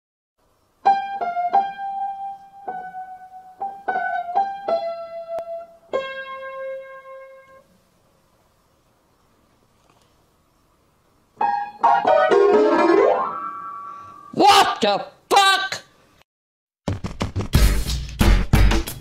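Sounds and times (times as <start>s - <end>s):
electric keyboard melody: 0.8s - 7.6s, 11.4s - 14.1s.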